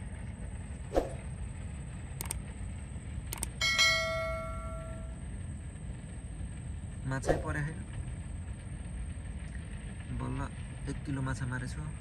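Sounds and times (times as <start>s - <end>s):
low steady background rumble: 0.0s - 12.0s
bell chime: 3.6s - 5.2s.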